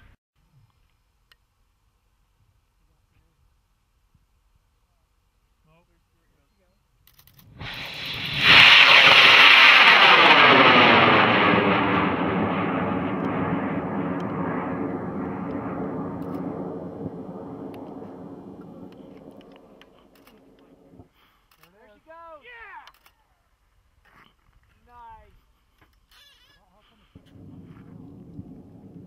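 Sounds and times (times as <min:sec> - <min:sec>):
rocket motor roaring: 0:07.4 - 0:21.1, 0:27.2 - 0:29.0.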